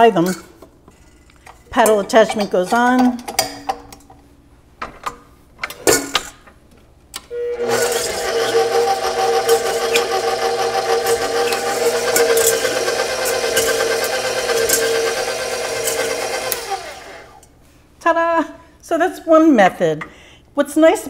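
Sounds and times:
stand mixer motor humming: 7.4 - 17.4.

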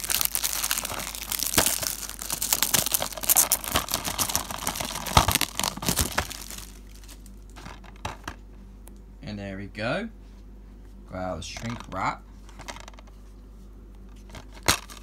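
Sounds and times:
plastic shrink wrap crinkling: 0.0 - 7.7.

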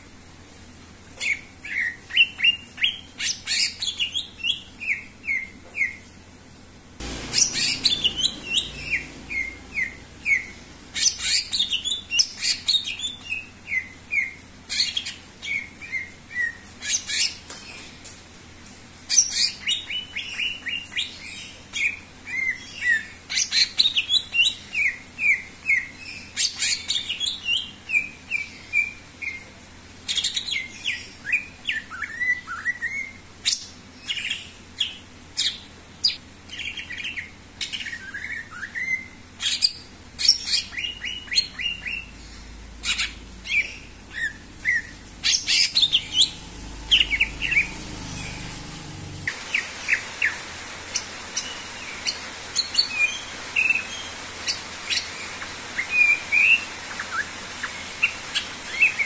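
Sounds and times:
bird singing rapid chirps: 7.0 - 16.6, 36.6 - 50.4.

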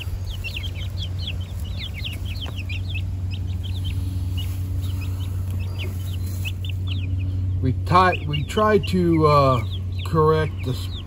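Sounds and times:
chicks peeping: 0.0 - 11.0.

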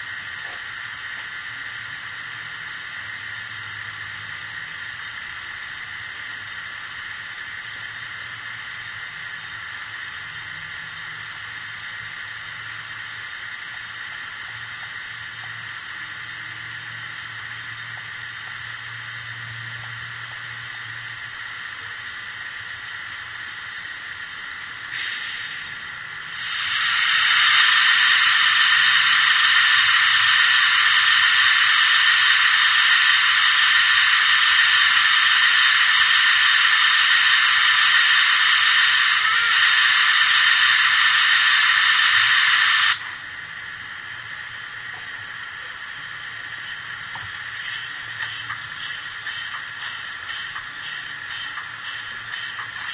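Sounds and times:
steam hiss through small speaker: 0.0 - 52.9
steam puff: 24.8 - 43.2, 46.6 - 52.9.

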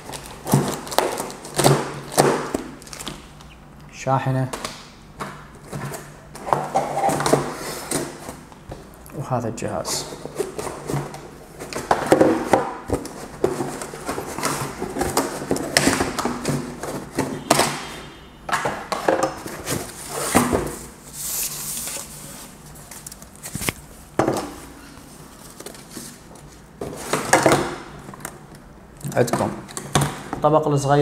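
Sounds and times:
cardboard and plastic rustling: 0.0 - 3.2, 9.9 - 17.8, 18.6 - 28.5.

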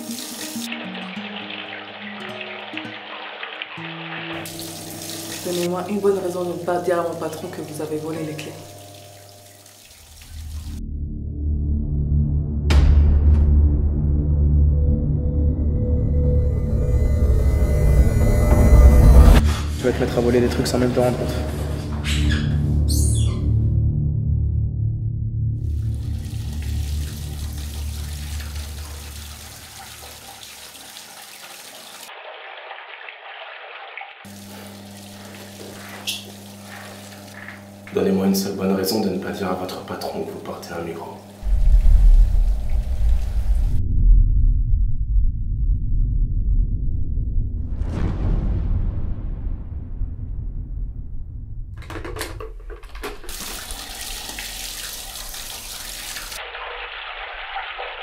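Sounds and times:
water running from a tap: 0.0 - 10.8, 25.7 - 43.4, 51.9 - 58.0
water splashes: 0.0 - 10.8, 25.7 - 37.9, 52.6 - 58.0
low rumble: 10.8 - 22.0, 41.4 - 53.0
low music drone: 10.8 - 22.9, 41.4 - 47.6
low steady hum: 34.3 - 46.8
tap running into a sink: 51.8 - 56.4.

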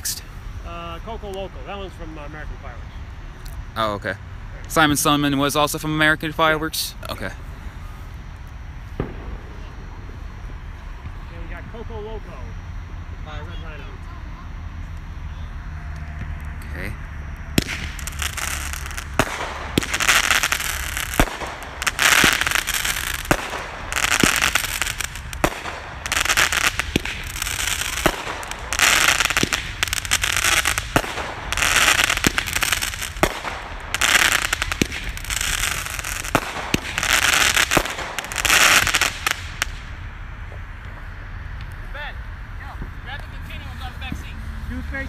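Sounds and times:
crackling firework stars: 0.0 - 44.8
firework launch pops: 8.9 - 11.2, 17.6 - 39.9.

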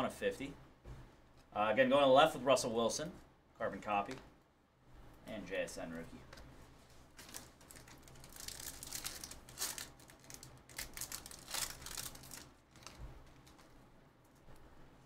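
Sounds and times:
foil wrapper tearing and crinkling: 7.2 - 13.6.

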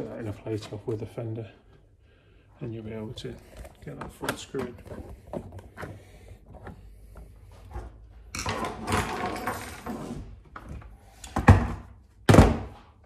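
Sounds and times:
hard plastic scraping: 2.9 - 7.8.

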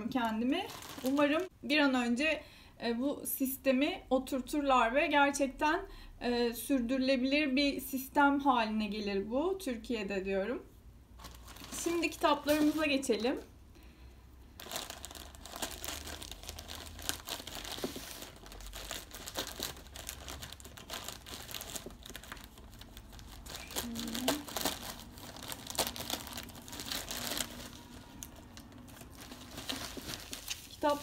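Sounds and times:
plastic packaging crinkling: 0.0 - 1.5, 11.2 - 13.4, 14.5 - 31.0.

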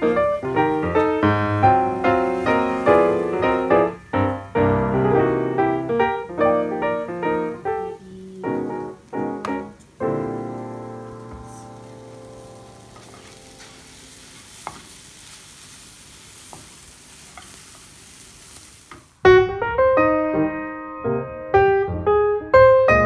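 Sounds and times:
piano music: 0.0 - 14.5, 19.2 - 23.0
food sizzling in a frying pan: 0.0 - 19.3.

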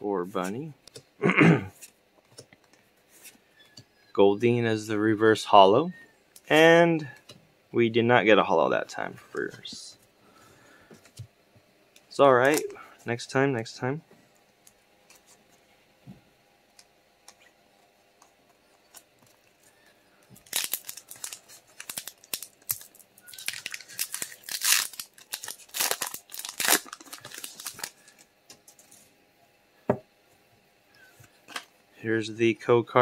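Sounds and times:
foil wrapper tearing and crinkling: 20.3 - 28.9.

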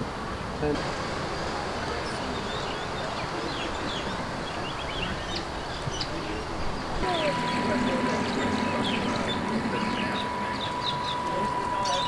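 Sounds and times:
birds chirping: 2.0 - 12.0
steady rushing noise: 6.8 - 12.0.

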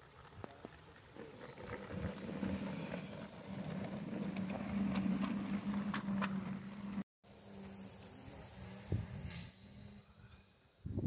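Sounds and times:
wheels clicking over rail joints: 0.0 - 7.0
electric locomotive motor hum: 0.0 - 11.0.

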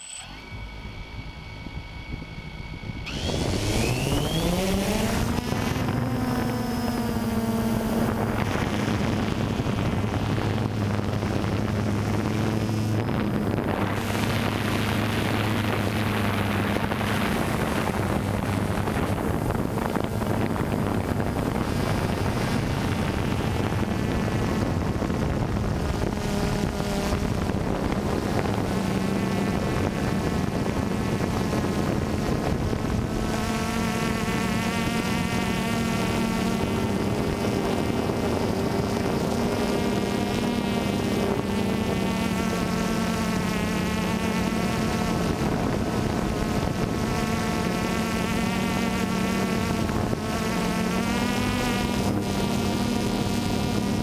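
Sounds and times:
drone motors buzzing: 0.0 - 54.0.

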